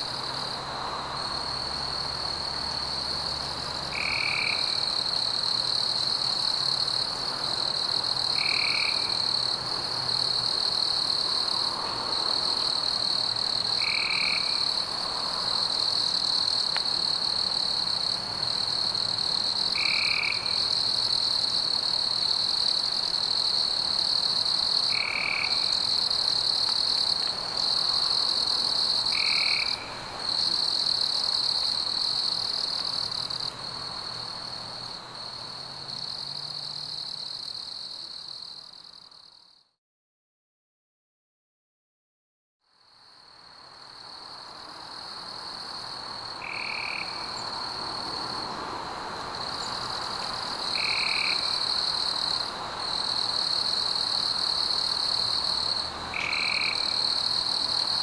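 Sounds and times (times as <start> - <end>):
chorus of insects and frogs: 0.0 - 39.7, 42.7 - 58.0.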